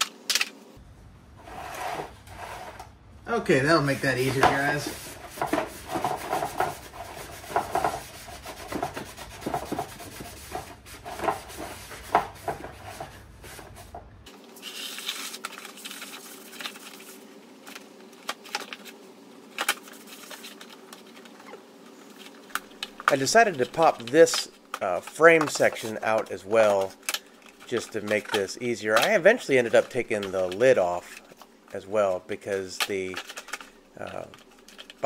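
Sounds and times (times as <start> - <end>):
faint steady hum: 0.0 - 35.0
plastic rubbing and scraping: 3.8 - 31.8, 32.4 - 35.0.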